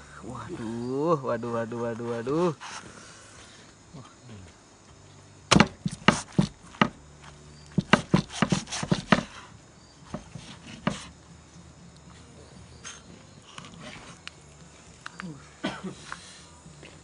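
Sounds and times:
cleaver chopping on wooden board: 5.5 - 7.0, 7.8 - 9.4, 10.1 - 11.1.

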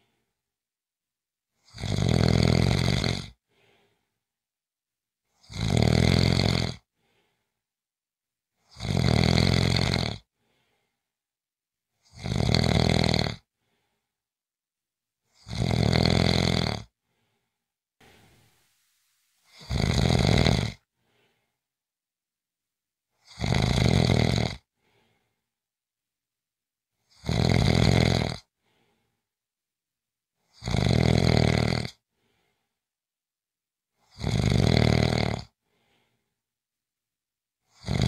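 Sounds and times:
person snoring: 1.6 - 3.4, 5.4 - 6.9, 8.6 - 10.3, 12.0 - 13.5, 15.3 - 16.9, 19.4 - 20.9, 23.2 - 25.2, 27.0 - 28.5, 30.5 - 32.0, 34.0 - 35.6, 37.7 - 38.0.

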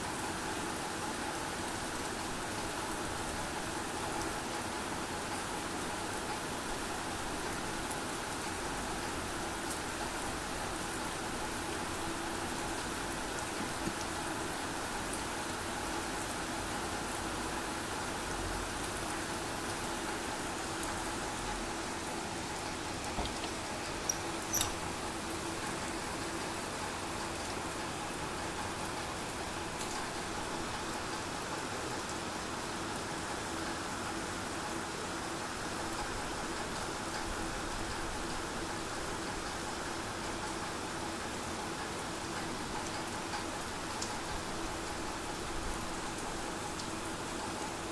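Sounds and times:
rain on concrete rooftop: 0.0 - 47.9.

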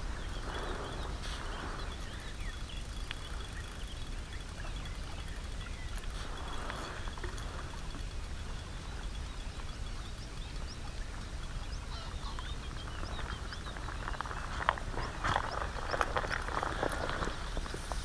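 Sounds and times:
small birds chirping: 0.0 - 18.0
wind on microphone: 0.0 - 18.0.

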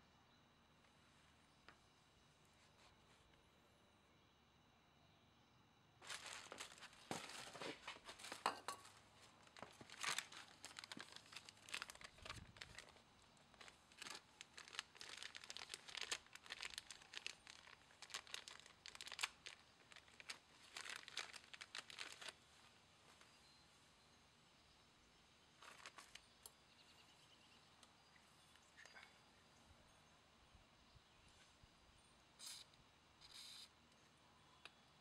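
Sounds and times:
plastic bag crinkling: 6.0 - 22.4, 25.6 - 26.3.

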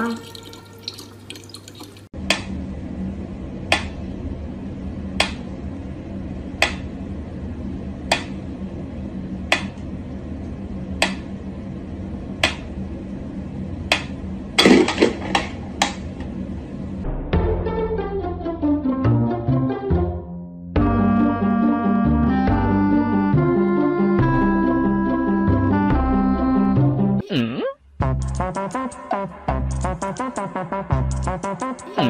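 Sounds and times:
steady low hum: 2.2 - 17.2.

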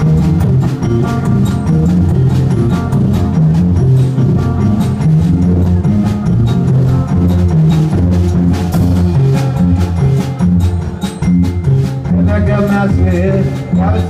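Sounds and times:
drum kit beat: 0.0 - 14.0
electric guitar riff: 0.0 - 14.0.

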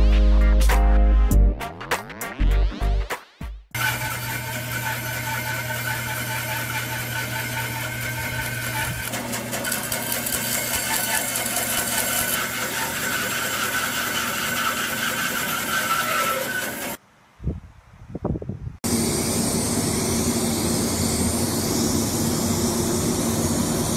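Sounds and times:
band saw cutting log: 3.8 - 17.0, 18.8 - 23.9.

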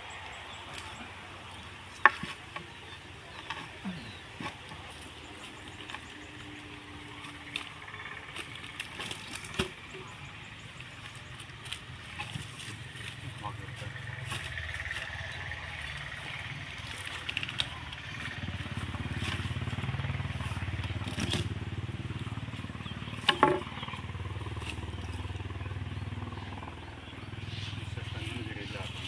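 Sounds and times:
small engine running: 0.0 - 29.0
heavy log knocking: 1.9 - 5.0, 22.9 - 24.2.

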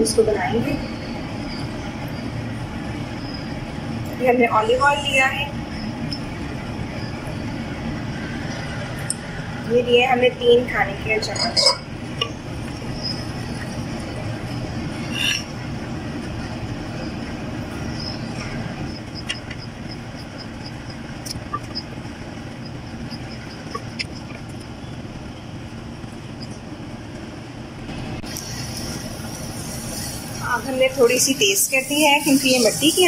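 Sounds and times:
gas burner rushing: 5.3 - 33.0.

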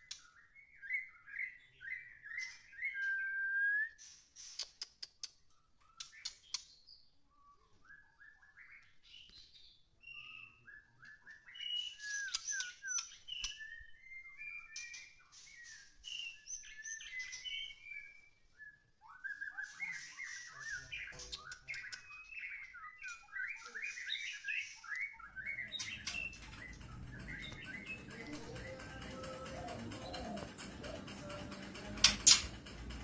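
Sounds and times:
bird singing whistled notes: 0.0 - 4.0, 5.8 - 30.5
bird clicking chatter: 25.4 - 33.0.

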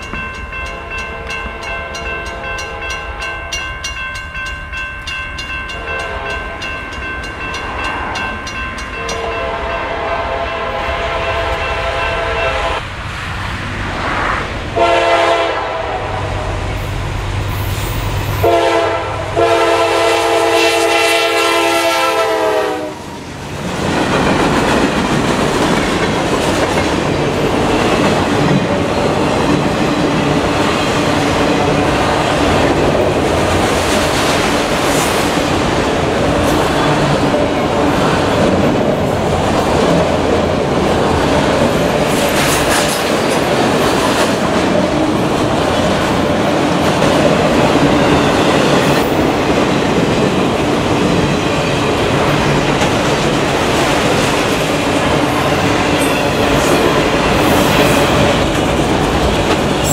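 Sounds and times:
freight train wheels rumbling: 0.0 - 59.9.

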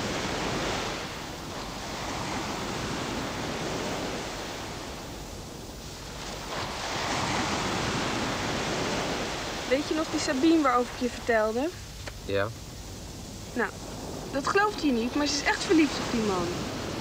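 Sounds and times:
surf breaking on rocks: 5.8 - 12.4, 13.4 - 17.0.

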